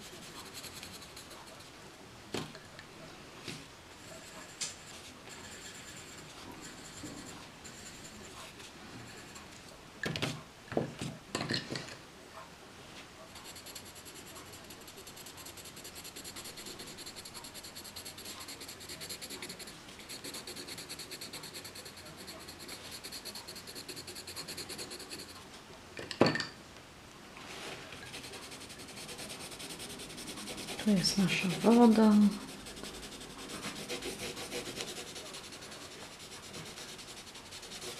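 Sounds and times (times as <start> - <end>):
pencil scratching on paper: 0.0 - 1.7, 4.0 - 8.5, 13.3 - 25.4, 28.0 - 37.9.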